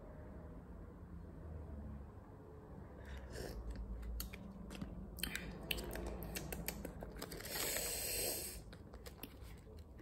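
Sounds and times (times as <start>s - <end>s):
mouth chewing with wet clicks: 3.1s - 7.6s.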